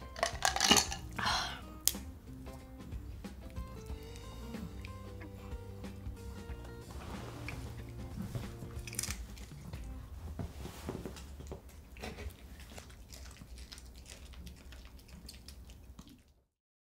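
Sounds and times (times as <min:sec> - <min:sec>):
small dog chewing: 0:03.9 - 0:10.1, 0:11.4 - 0:16.5.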